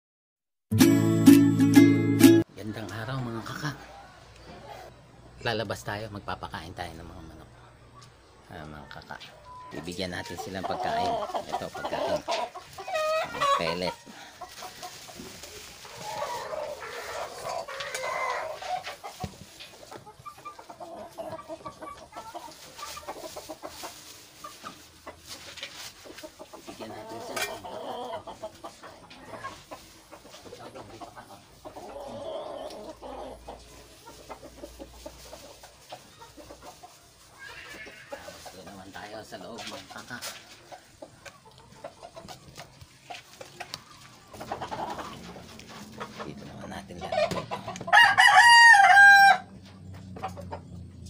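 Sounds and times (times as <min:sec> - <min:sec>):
chickens clucking: 0:01.8 - 0:51.0.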